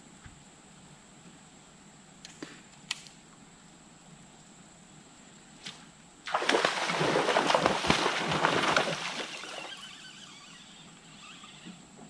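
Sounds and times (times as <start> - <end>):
fish thrashing and splashing water: 6.3 - 9.8.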